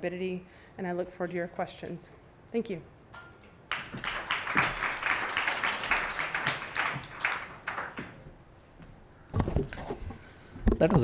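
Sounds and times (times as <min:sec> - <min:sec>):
audience applauding: 0:03.7 - 0:08.2.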